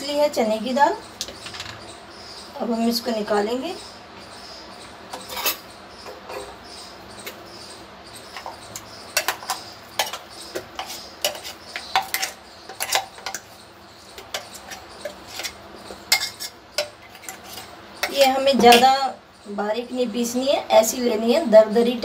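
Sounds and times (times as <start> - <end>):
metal spoon scraping steel jar: 5.2 - 5.6, 14.2 - 18.8.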